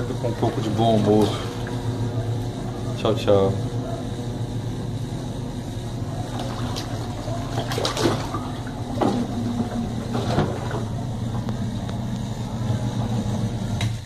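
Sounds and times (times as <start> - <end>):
agitator churning water: 0.0 - 14.0
washing machine motor hum: 0.0 - 14.0
knocks and sloshes: 6.2 - 11.8.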